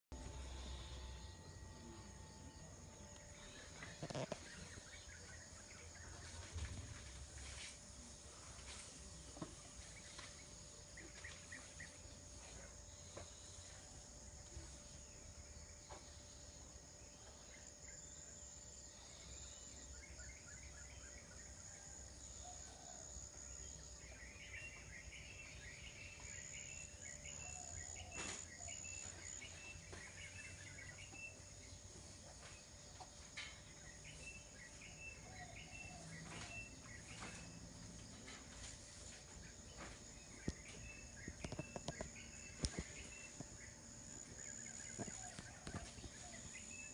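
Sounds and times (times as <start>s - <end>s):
insect trill: 0.1s - 8.8s
bird chirps: 32.4s - 39.1s, 39.7s - 46.9s.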